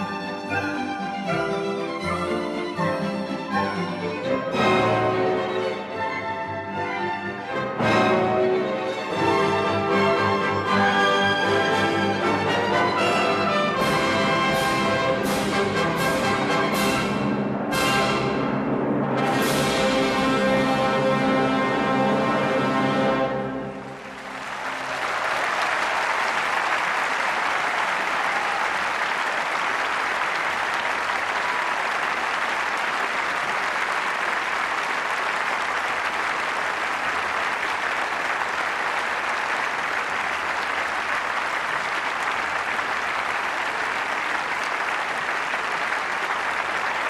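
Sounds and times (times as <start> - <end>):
large audience applauding: 22.9 - 47.0.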